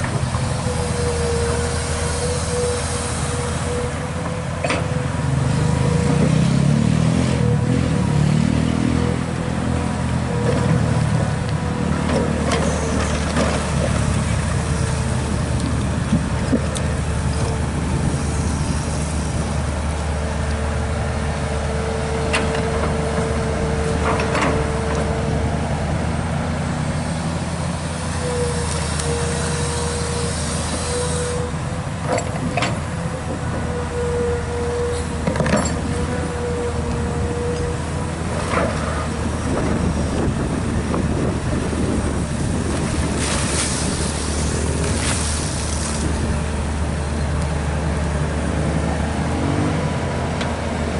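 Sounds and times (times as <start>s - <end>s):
excavator diesel engine running: 0.0s - 50.9s.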